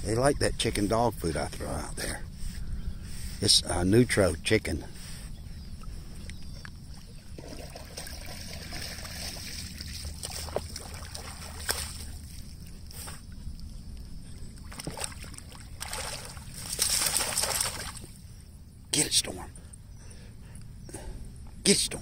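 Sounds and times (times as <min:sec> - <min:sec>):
water sloshing and splashing: 0:05.8 - 0:18.2.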